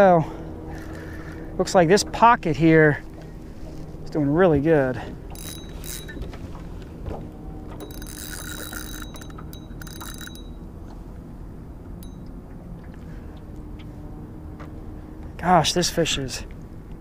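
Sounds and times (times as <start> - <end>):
low steady rumble: 0.0 - 17.0
fishing reel whirring: 4.9 - 6.4, 7.7 - 10.7.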